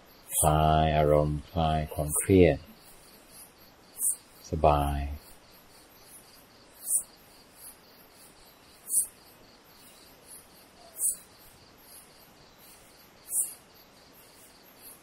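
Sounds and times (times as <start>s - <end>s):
crickets chirping: 0.0s - 15.0s
insect shrill high call: 4.0s - 4.3s, 6.8s - 7.1s, 8.8s - 9.2s, 10.7s - 11.4s, 12.6s - 13.6s.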